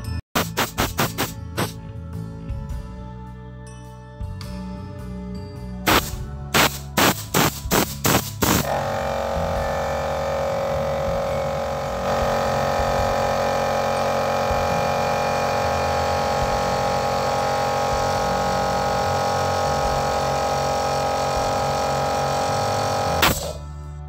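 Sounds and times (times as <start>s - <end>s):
electric air compressor humming: 0.4s - 1.8s, 5.9s - 23.7s.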